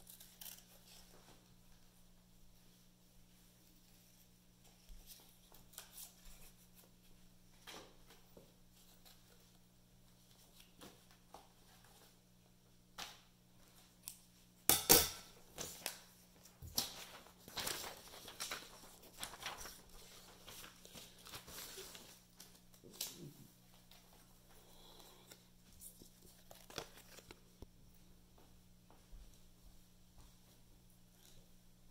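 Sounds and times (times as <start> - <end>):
faint low hum: 0.0 - 31.9.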